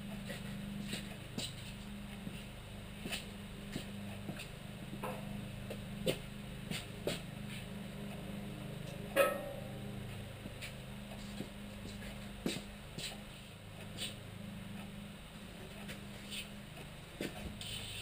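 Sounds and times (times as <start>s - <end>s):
steady low hum: 0.0s - 18.0s
sharp metal knock: 9.2s - 9.7s.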